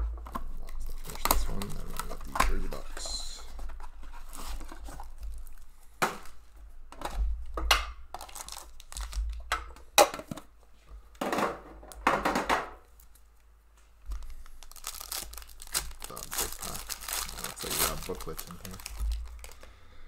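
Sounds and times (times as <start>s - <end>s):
plastic packaging rustling: 0.2s - 6.4s, 8.1s - 9.5s, 14.0s - 19.8s.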